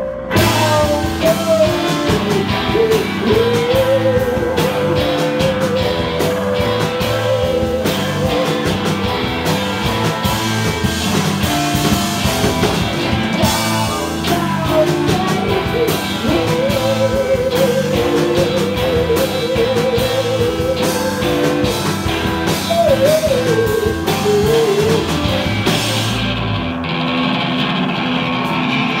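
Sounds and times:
held wavering melody line: 0:00.0 - 0:11.2
drum kit: 0:00.0 - 0:29.0
electric guitars: 0:00.0 - 0:29.0.

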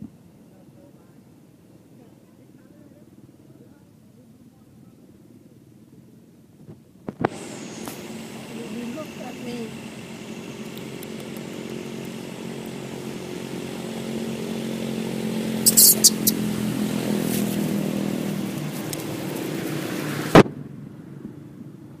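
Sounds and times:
small engine running: 0:07.3 - 0:20.4
sharp clicks: 0:10.6 - 0:12.2.

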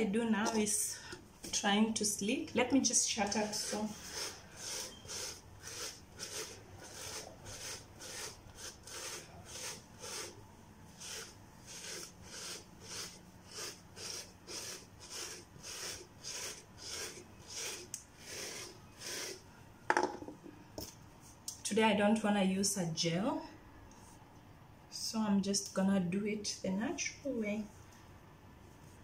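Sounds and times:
hairbrush stroking through hair: 0:03.2 - 0:19.4.

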